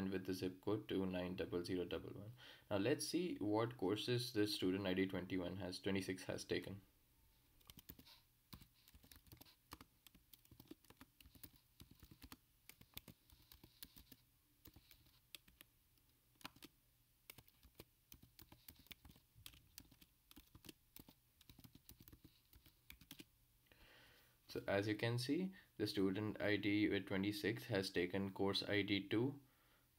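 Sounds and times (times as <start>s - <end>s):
faint keyboard typing: 7.6s - 23.3s.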